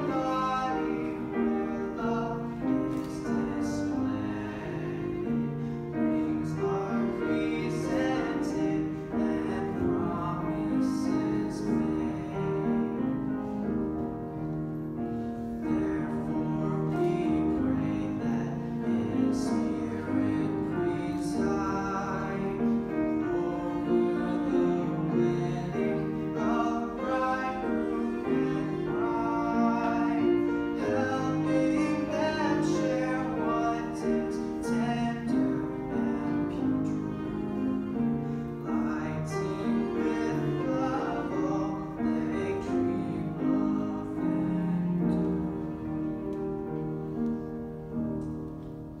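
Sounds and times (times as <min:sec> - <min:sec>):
man singing classical song: 0:00.0 - 0:48.0
piano: 0:00.0 - 0:49.0.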